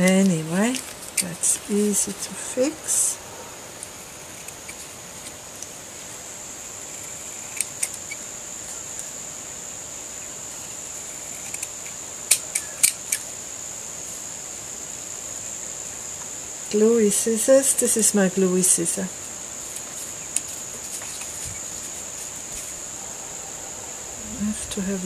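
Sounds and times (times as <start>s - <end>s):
high-pitched background tone: 22.8s - 25.0s.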